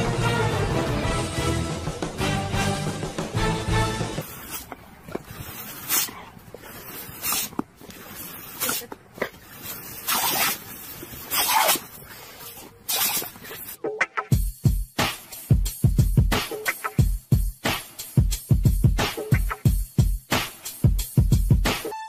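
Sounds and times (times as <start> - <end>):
hissing spray blasts: 4.2 - 13.8.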